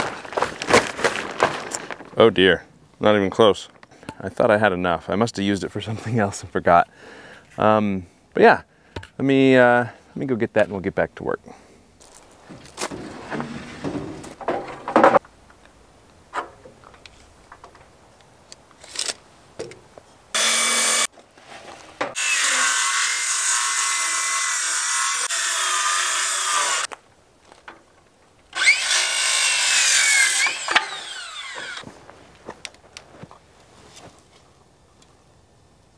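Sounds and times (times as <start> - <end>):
lumber knocking and rustling: 12.1 - 15.3
circular saw cutting wood: 20.3 - 21.1, 22.1 - 26.9, 28.5 - 31.8.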